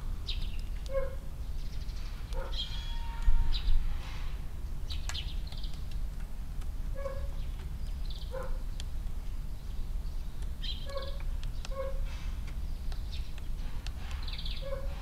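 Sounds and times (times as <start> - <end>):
sparrows chirping: 0.2 - 3.8, 4.5 - 6.1, 6.9 - 15.0
light clicks: 4.9 - 6.7, 10.3 - 14.4.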